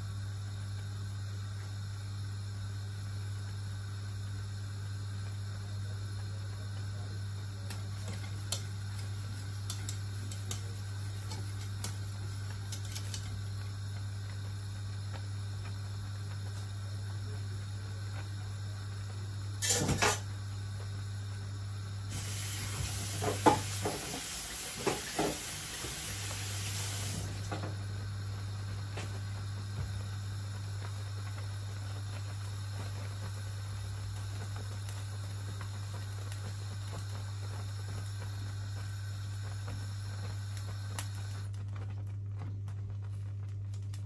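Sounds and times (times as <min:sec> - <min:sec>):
porridge boiling in a pot: 0:00.0 - 0:44.0
steady low hum: 0:00.0 - 0:44.0
pot hissing: 0:22.0 - 0:41.4.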